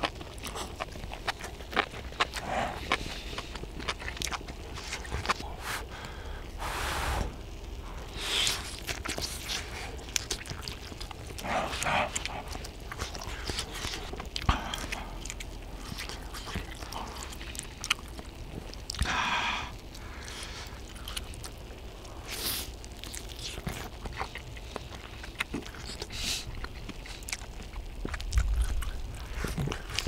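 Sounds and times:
wet chewing and biting: 0.0s - 6.2s, 7.4s - 30.0s
blowing on hot food: 6.5s - 7.4s.

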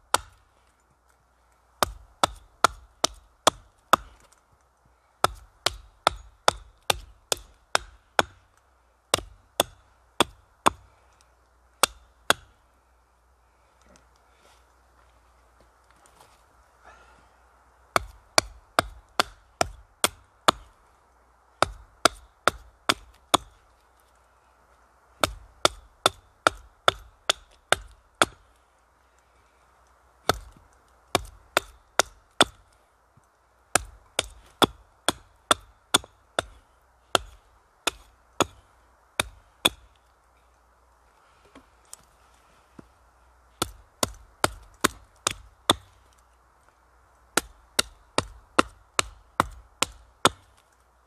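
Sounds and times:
hatchet chopping wood: 0.1s - 0.4s, 1.8s - 4.4s, 5.2s - 11.0s, 11.8s - 12.6s, 17.9s - 20.8s, 21.6s - 23.6s, 25.2s - 28.5s, 30.2s - 32.7s, 33.7s - 40.0s, 43.6s - 46.2s, 47.3s - 50.6s.

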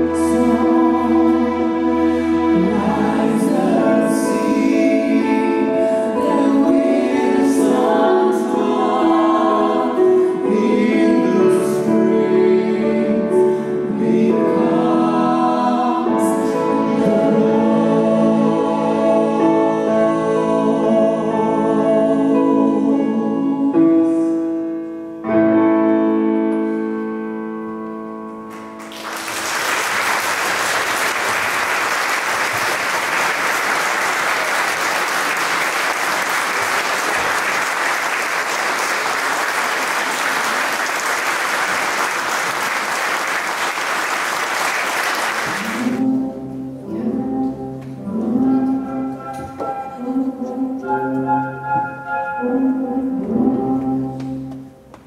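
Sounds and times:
music piece playing: 0.0s - 55.0s
audience applauding: 28.5s - 46.0s
music held chord: 45.6s - 54.9s.

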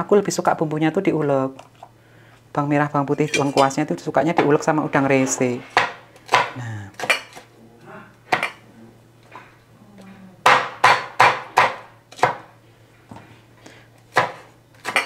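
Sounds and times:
sharp knocks on hard kitchen surface: 5.7s - 7.2s, 10.4s - 12.5s.

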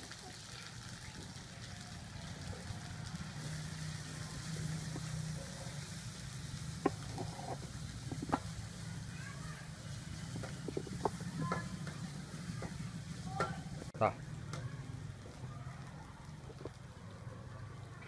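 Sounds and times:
food frying in a wok: 0.0s - 18.0s
ladle stirring in a wok: 3.2s - 8.8s.

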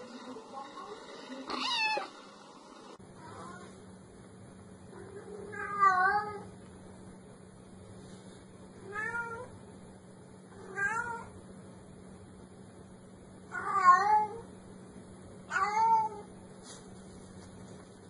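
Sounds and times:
cat meowing: 1.5s - 2.2s, 10.6s - 11.3s, 13.6s - 14.4s, 15.5s - 16.3s.

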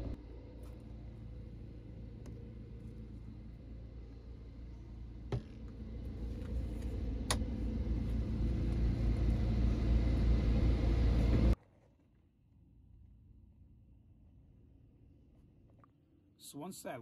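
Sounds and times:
low rumble: 0.0s - 11.6s.

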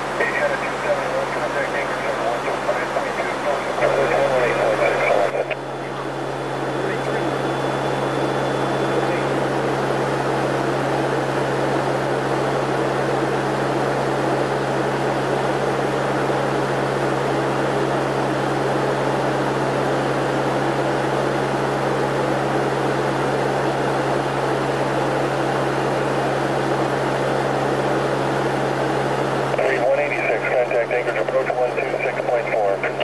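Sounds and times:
turboprop engines low hum: 0.0s - 33.0s.

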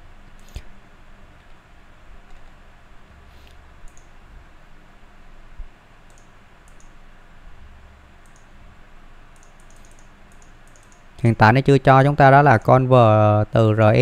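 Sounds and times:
computer mouse clicks: 0.4s - 0.7s, 3.4s - 4.1s, 6.1s - 7.0s, 8.2s - 8.5s, 9.4s - 11.1s.

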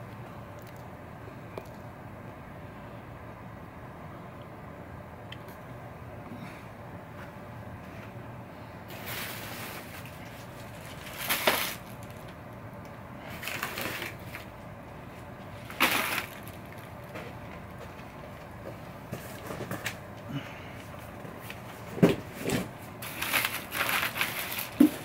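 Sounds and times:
plastic packaging crinkling: 8.9s - 12.4s, 13.3s - 14.5s, 15.5s - 17.2s, 23.0s - 25.0s.

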